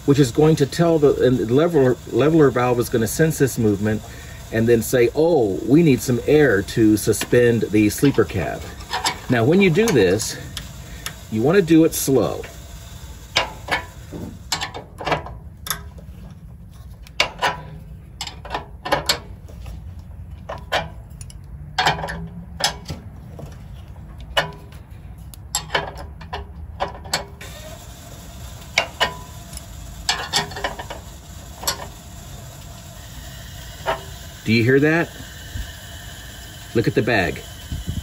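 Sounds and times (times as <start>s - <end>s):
metal clicks of wrench on jack: 6.0s - 11.2s, 13.3s - 13.9s, 14.5s - 16.0s, 17.0s - 19.4s, 20.4s - 23.0s, 24.2s - 27.4s, 28.6s - 31.0s, 31.6s - 32.0s.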